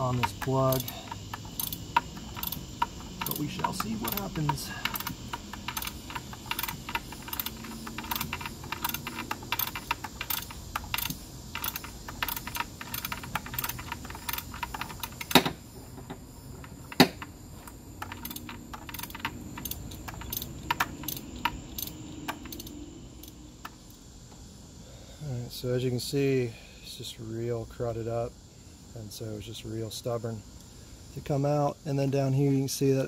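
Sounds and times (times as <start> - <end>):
hand ratchet clicking: 0.0 - 15.5, 16.6 - 23.4.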